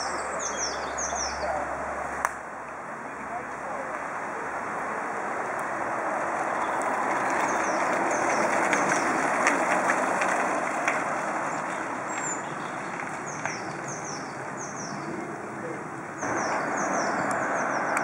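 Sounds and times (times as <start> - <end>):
small birds chirping: 0.0 - 1.7, 6.5 - 9.2, 11.4 - 18.0
bike tyres rolling on gravel: 3.4 - 18.0.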